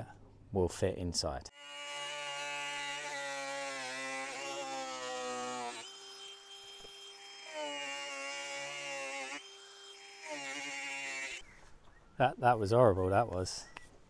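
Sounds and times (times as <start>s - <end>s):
angle grinder cutting plastic pipe: 1.6s - 11.4s.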